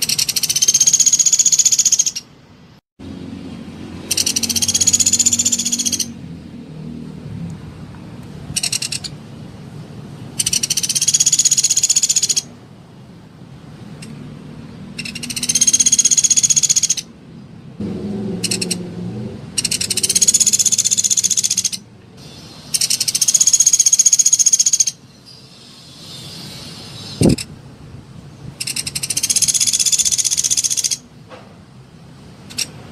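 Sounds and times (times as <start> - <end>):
woodpecker trilling rattles: 0.0 - 2.3, 4.0 - 6.2, 8.5 - 9.2, 10.4 - 12.5, 14.9 - 17.1, 18.4 - 18.9, 19.5 - 27.5, 28.5 - 31.1, 32.4 - 32.8.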